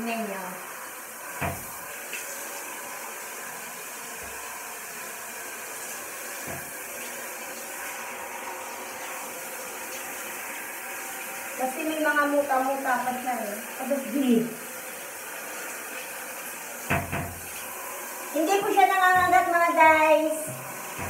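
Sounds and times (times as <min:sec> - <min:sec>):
shower head spraying water: 0:00.0 - 0:21.0
dull knocks: 0:16.9 - 0:17.4.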